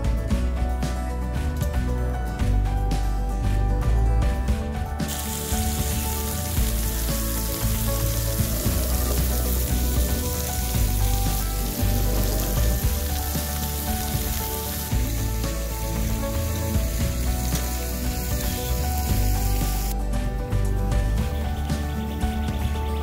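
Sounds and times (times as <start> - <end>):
soft background music: 0.0 - 23.0
wood fire crackling and hissing: 5.0 - 22.2.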